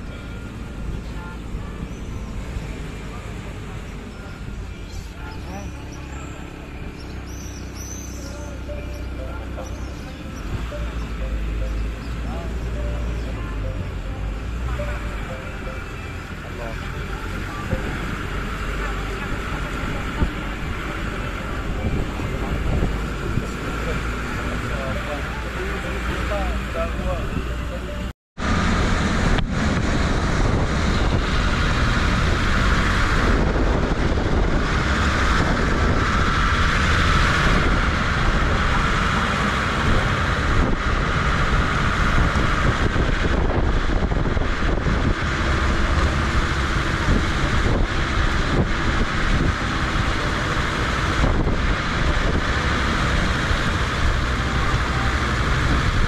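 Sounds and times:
jeep engine and tyres: 0:00.0 - 0:56.0
wind buffeting microphone: 0:17.3 - 0:24.6, 0:28.4 - 0:56.0.

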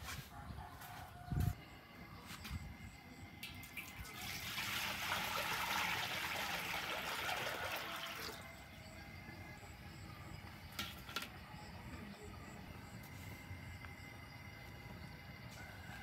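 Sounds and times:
water pouring: 0:03.4 - 0:08.5.

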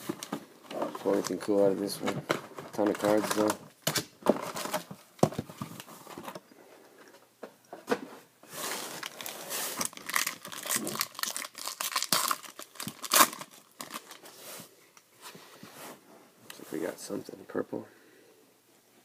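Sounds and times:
foil packs crinkling: 0:00.0 - 0:01.6, 0:02.5 - 0:04.9, 0:08.6 - 0:14.4
foil pack tearing open: 0:08.7 - 0:14.2.

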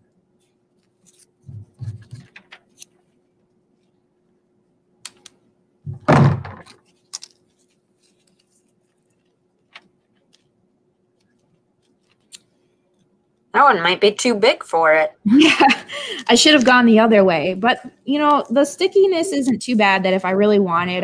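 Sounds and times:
faint steady hum: 0:00.0 - 0:21.0
thump on tabletop: 0:05.9 - 0:06.6.

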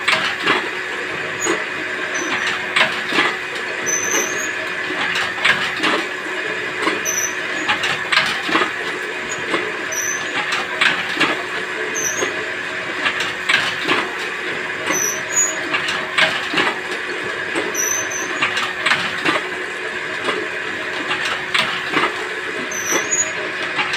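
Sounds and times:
machine motor hum: 0:00.0 - 0:23.9
short high squeaks: 0:03.8 - 0:04.5, 0:07.0 - 0:07.4, 0:09.9 - 0:10.3, 0:14.9 - 0:15.5, 0:17.8 - 0:18.4, 0:22.7 - 0:23.4.

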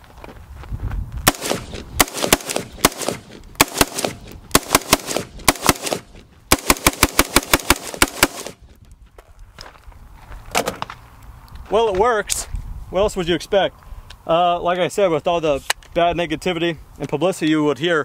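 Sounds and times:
rifle firing rapid shots: 0:01.3 - 0:08.6.

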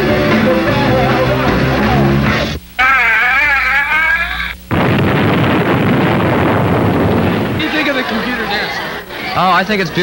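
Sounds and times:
loud explosion blast: 0:04.7 - 0:08.1.

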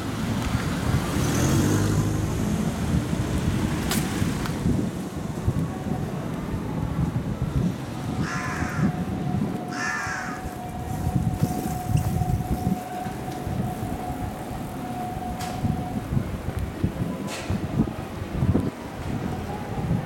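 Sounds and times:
street noise: 0:00.0 - 0:20.0
wind: 0:00.0 - 0:20.0
crow cawing: 0:08.2 - 0:09.0, 0:09.7 - 0:10.5.

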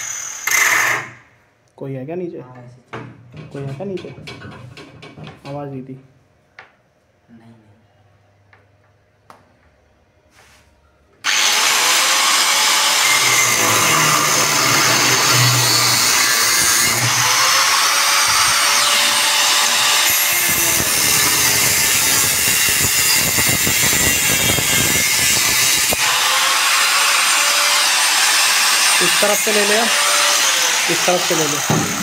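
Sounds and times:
angle grinder running: 0:11.2 - 0:32.0
grinder disc on steel: 0:11.2 - 0:32.0.

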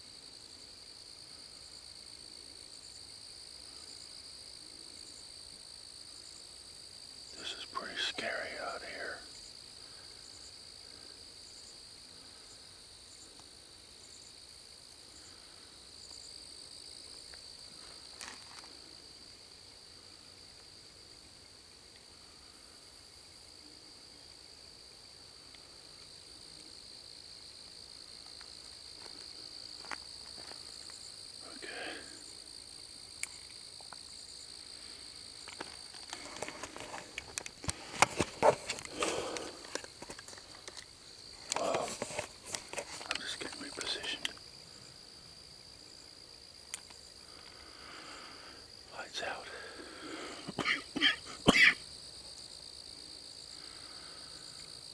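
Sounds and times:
insect chirps: 0:00.0 - 0:54.9
insects droning: 0:00.0 - 0:54.9
rustling: 0:35.4 - 0:43.7.

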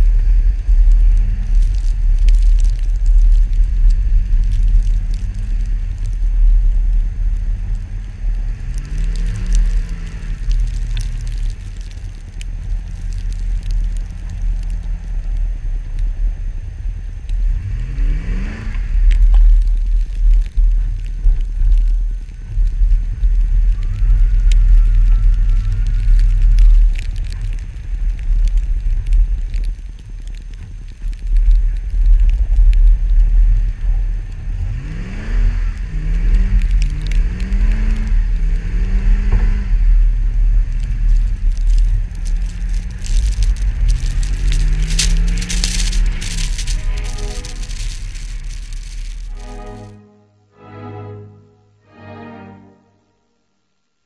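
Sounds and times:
wind rumble on camera: 0:00.0 - 0:49.9
tyres crunching snow: 0:00.0 - 0:50.0.

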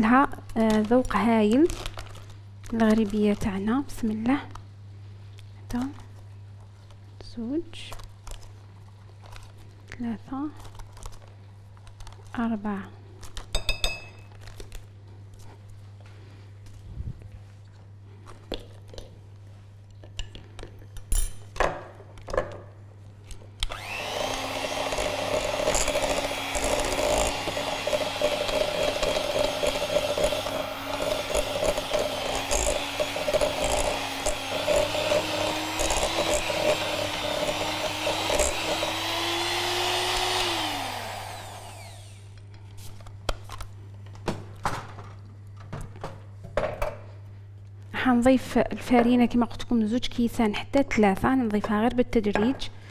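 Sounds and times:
utensils clinking against bowl: 0:13.5 - 0:14.3
electric hand mixer running: 0:23.6 - 0:42.4.

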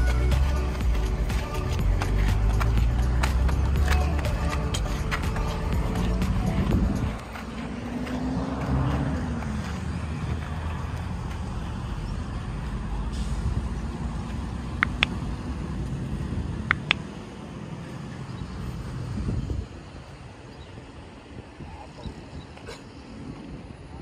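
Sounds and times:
wind on microphone: 0:00.0 - 0:11.3, 0:18.6 - 0:24.0
distant road traffic: 0:00.0 - 0:24.0
double mouse-click sound effect: 0:16.7 - 0:17.0.

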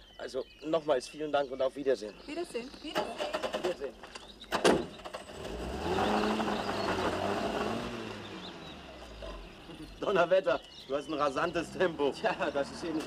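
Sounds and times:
car engine pulling away: 0:04.5 - 0:13.0.

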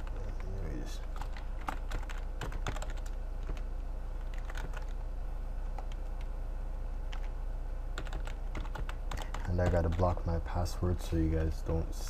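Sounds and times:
keyboard typing: 0:00.0 - 0:05.0, 0:05.7 - 0:06.3, 0:07.1 - 0:07.3, 0:08.0 - 0:10.2
steady low hum: 0:00.0 - 0:12.0.

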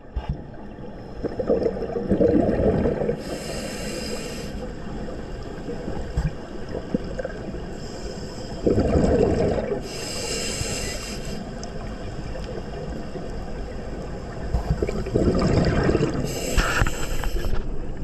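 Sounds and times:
exhaled bubbles burbling: 0:01.1 - 0:03.2, 0:06.0 - 0:07.6, 0:08.6 - 0:09.8, 0:14.5 - 0:16.3
hissing regulator inhale: 0:03.2 - 0:04.8, 0:07.7 - 0:08.6, 0:09.8 - 0:11.5, 0:16.2 - 0:17.7.

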